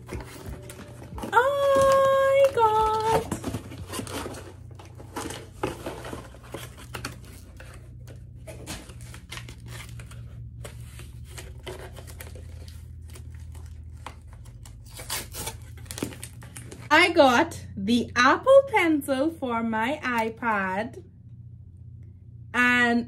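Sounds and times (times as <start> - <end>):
cardboard rustling and scraping: 0.0 - 16.9.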